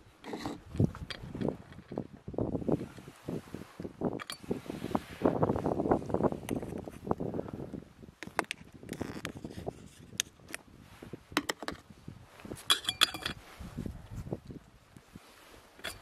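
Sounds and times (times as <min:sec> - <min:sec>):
metal lid clinking on pot: 0:12.7 - 0:13.4
spoon scraping metal pot: 0:15.8 - 0:16.0.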